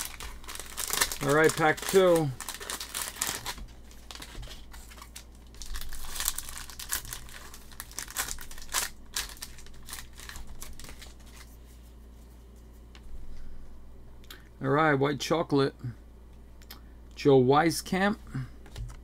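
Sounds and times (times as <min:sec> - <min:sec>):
cellophane wrapper crinkling and tearing: 0:00.0 - 0:11.6.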